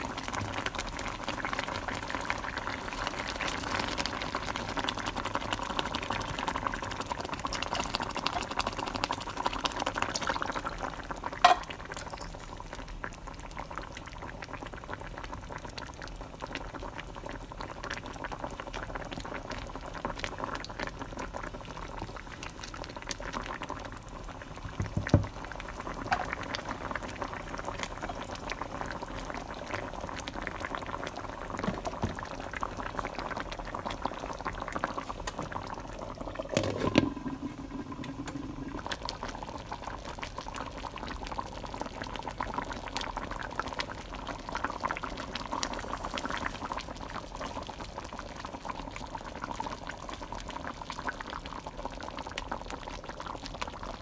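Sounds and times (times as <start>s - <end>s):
sauce bubbling and popping: 0.0s - 54.0s
glass lid clunk on pan: 11.4s - 11.8s
thump: 24.8s - 25.3s.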